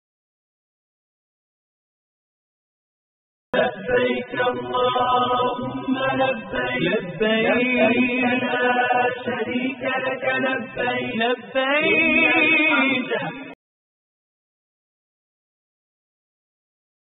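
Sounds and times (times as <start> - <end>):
unaccompanied chanted singing: 3.6 - 13.6.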